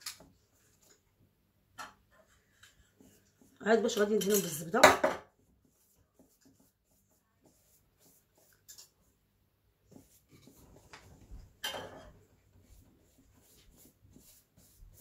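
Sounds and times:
pastry brush brushing: 2.2s - 9.2s, 9.8s - 15.0s.

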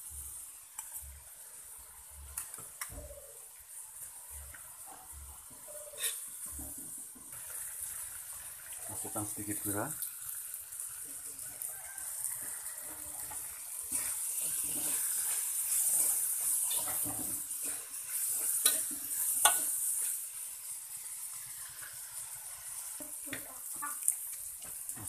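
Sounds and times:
food sizzling in a wok: 0.0s - 25.0s
metal spatula scraping a pan: 5.7s - 6.4s, 13.2s - 20.2s.

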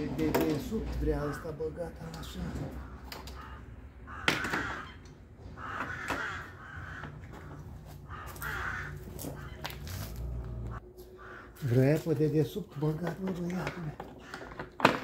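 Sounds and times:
crow cawing: 2.7s - 9.9s, 10.6s - 11.8s, 14.1s - 14.8s.

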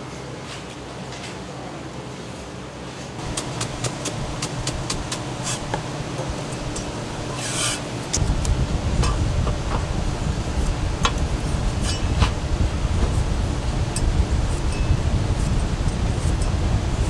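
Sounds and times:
low rumble: 3.2s - 17.0s
knife scraping board: 7.3s - 7.8s, 11.8s - 12.4s.

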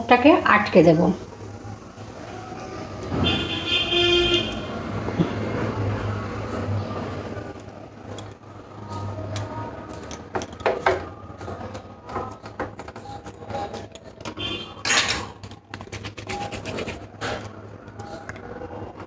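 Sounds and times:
hands pressing dough: 15.3s - 18.5s.

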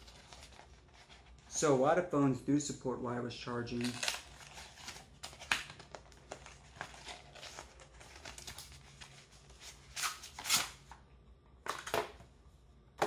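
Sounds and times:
cardboard rustles: 3.9s - 10.6s.

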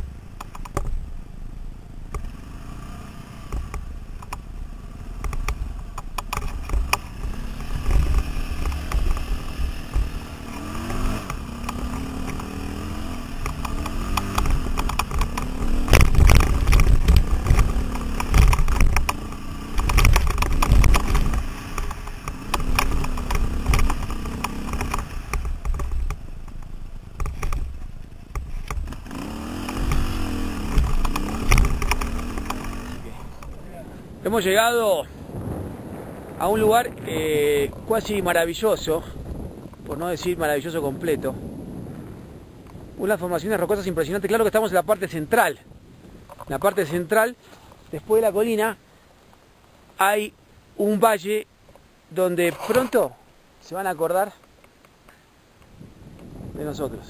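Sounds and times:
dirt bike engine revving: 2.2s - 39.2s
bike clattering over rocks: 13.4s - 29.0s, 29.6s - 33.6s.

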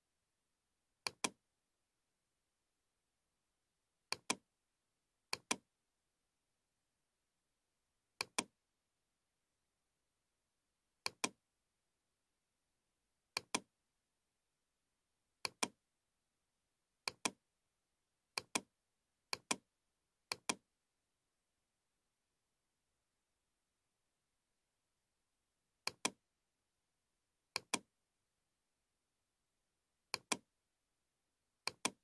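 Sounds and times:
computer mouse clicks: 1.0s - 1.4s, 4.1s - 4.4s, 5.3s - 5.6s, 8.2s - 8.5s, 11.0s - 11.4s, 13.3s - 13.7s, 15.4s - 15.8s, 17.0s - 17.4s, 18.3s - 18.7s, 19.3s - 19.6s, 20.3s - 20.6s, 25.8s - 26.2s, 27.5s - 27.9s, 30.1s - 30.5s, 31.6s - 32.0s.

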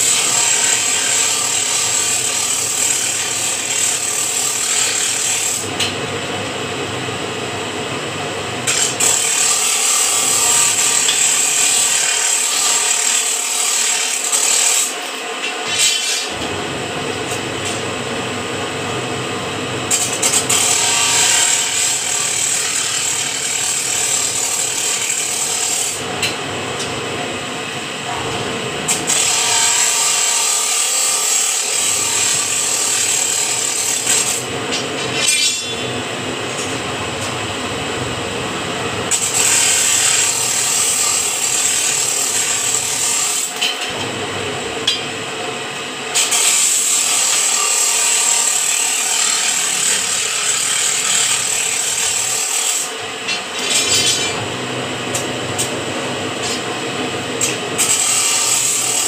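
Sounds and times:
machine rubbing and grinding: 46.2s - 55.8s.

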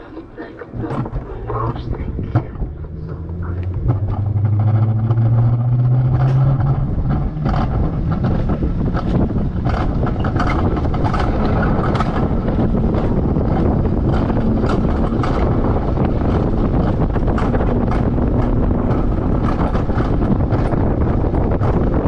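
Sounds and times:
coaster wheels rolling on rails: 0.0s - 22.0s
steady low hum: 0.0s - 22.0s
clicks and rattles: 0.5s - 22.0s.

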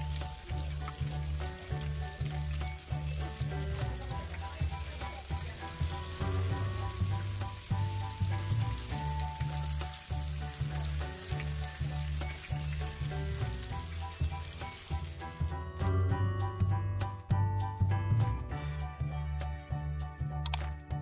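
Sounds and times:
spatula pushing food in oil: 0.0s - 15.5s
tofu sizzling in hot oil: 0.0s - 15.7s
background music with steady beat: 0.0s - 21.0s.

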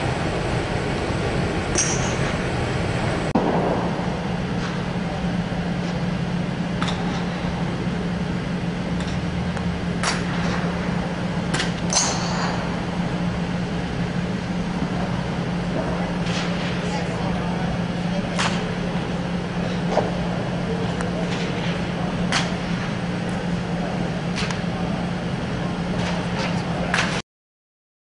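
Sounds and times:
low mechanical hum: 0.0s - 27.2s
golf club striking ball: 1.7s - 2.2s.

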